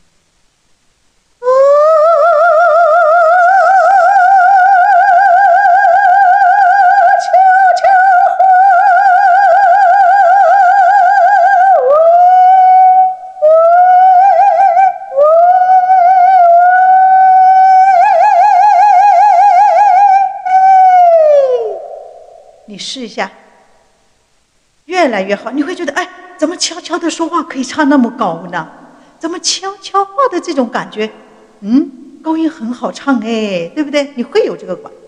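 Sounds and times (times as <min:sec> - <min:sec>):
woman singing high held notes: 0:01.4 - 0:21.8.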